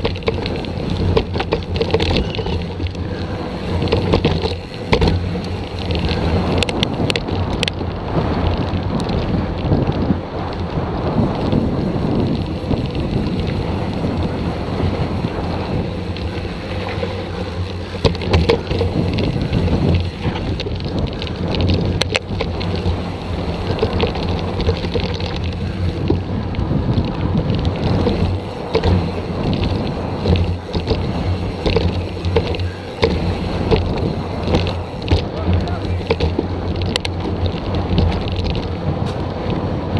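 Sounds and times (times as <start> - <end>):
stones clicking and knocking: 0.0 - 7.8, 15.9 - 39.2
bike rattling over bumps: 0.0 - 39.9
wind and tyre noise: 0.0 - 39.9.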